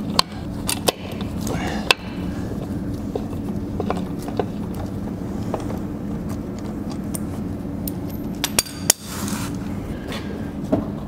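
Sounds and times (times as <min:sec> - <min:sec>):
steady low hum: 0:00.0 - 0:11.0
tools and bolts clinking: 0:07.0 - 0:09.0.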